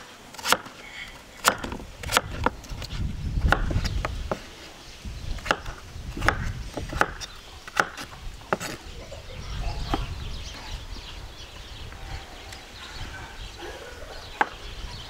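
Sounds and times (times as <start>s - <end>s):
knife chopping on wooden board: 1.4s - 2.6s, 3.5s - 4.4s, 5.4s - 8.8s.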